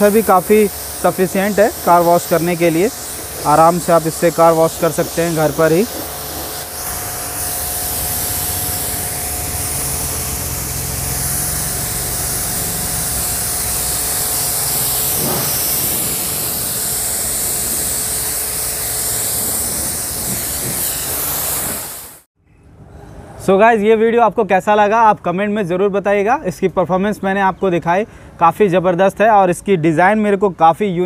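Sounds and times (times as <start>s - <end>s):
pressure washer jet spraying: 0.0s - 22.3s.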